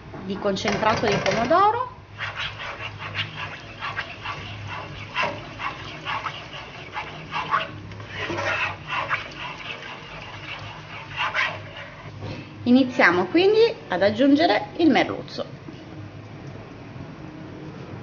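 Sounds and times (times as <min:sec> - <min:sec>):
low steady hum: 0:00.0 - 0:18.0
plastic spoon scraping pot: 0:00.7 - 0:12.2.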